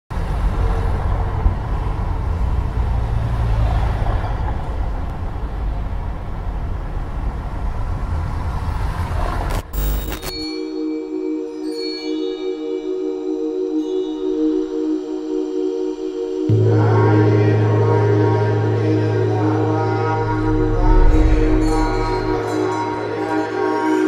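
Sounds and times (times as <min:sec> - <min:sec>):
road traffic rumble: 0:00.1 - 0:10.0.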